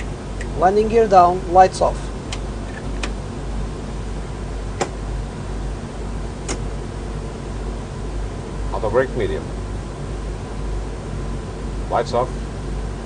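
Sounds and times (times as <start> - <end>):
cockpit rumble and hiss: 0.0 - 13.0
switch clicks: 4.8 - 5.0, 6.4 - 6.7.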